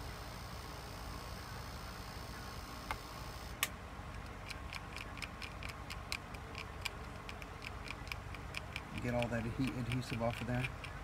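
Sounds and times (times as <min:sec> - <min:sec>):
light even ticking: 0:03.6 - 0:11.0.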